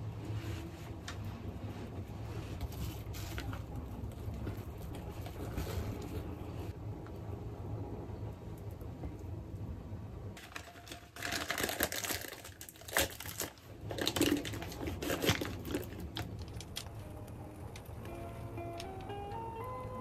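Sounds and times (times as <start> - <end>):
plastic bag crinkling: 10.4 - 16.9.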